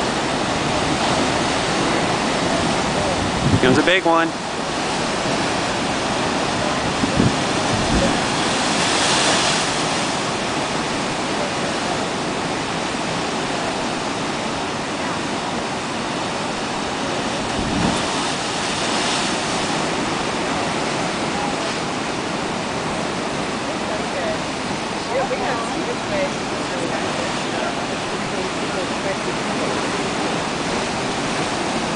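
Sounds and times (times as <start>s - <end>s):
low thuds of surf: 0.0s - 31.9s
ocean waves breaking on rocks: 0.0s - 31.9s.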